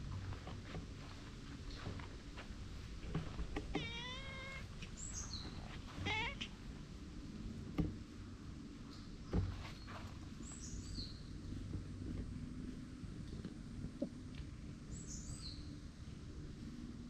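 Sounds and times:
cat meowing: 3.7s - 4.7s, 6.0s - 6.5s.

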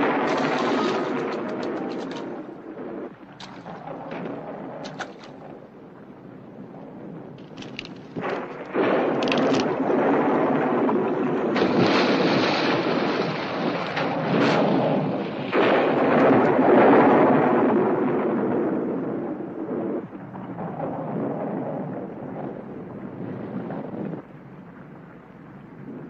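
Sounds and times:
thunder crashes: 0.0s - 5.5s, 7.4s - 20.0s
heavy rain: 0.0s - 23.7s
wind: 0.0s - 26.0s.

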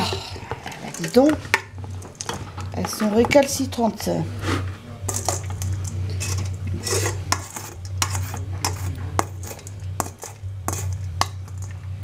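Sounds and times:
steady low hum: 0.0s - 12.0s
metal spoon scraping colander: 2.2s - 11.8s.

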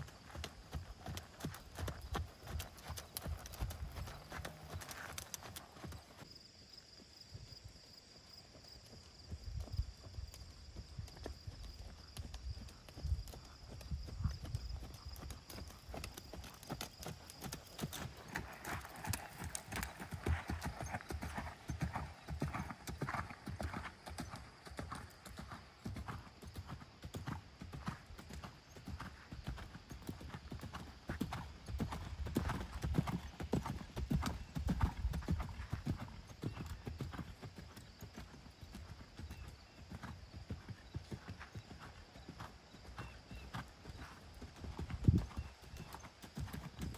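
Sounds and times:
horse hoofbeats trotting on sand: 0.0s - 46.9s.

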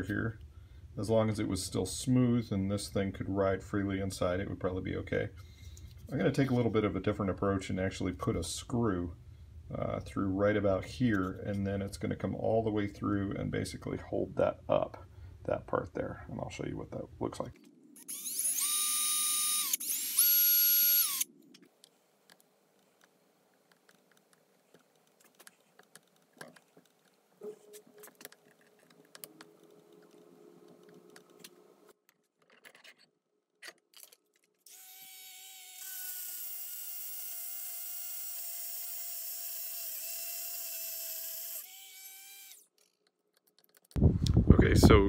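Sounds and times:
power drill whining: 18.0s - 21.3s.

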